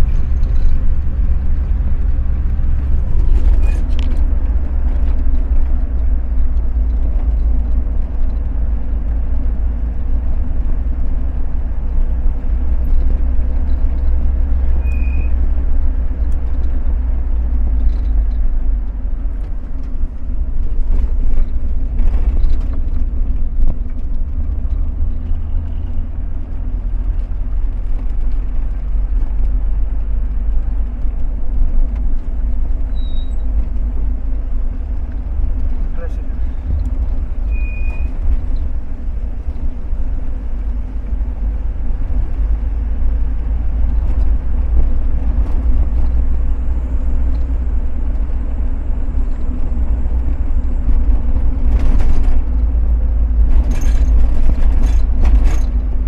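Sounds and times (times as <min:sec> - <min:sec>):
vehicle engine and tyres rumbling: 0:00.0 - 0:56.0.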